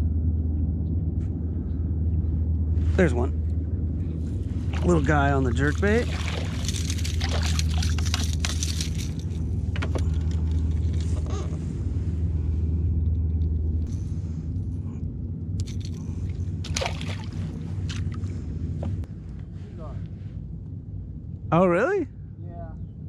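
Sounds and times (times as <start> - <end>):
steady low hum: 0.0 - 23.0
fish splashing at the surface: 4.7 - 8.2, 16.6 - 18.2
knocks and rattles of gear: 5.6 - 11.6.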